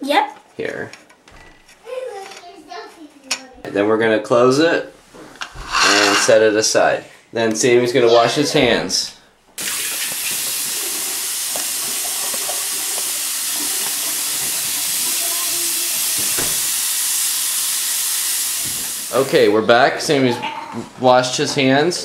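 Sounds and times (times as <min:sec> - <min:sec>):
hands rubbing under water: 0:05.5 - 0:06.4
tap water running into sink: 0:09.6 - 0:19.3.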